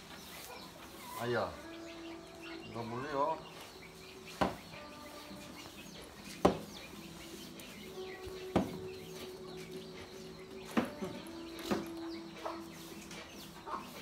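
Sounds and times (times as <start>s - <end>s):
birds chirping: 0.0s - 14.0s
chickens clucking: 0.0s - 14.0s
sharp knocks on wood: 4.3s - 4.6s, 6.3s - 6.8s, 8.5s - 8.9s.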